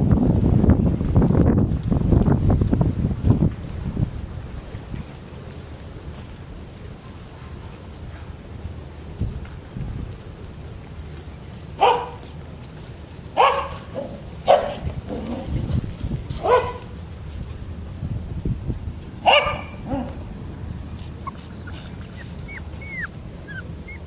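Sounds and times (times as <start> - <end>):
puppies yipping: 21.0 - 24.0.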